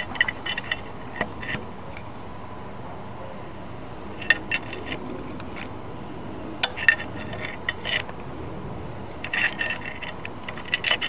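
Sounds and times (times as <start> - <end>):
wrench clinking against metal valve: 4.2 - 5.7, 9.2 - 11.0.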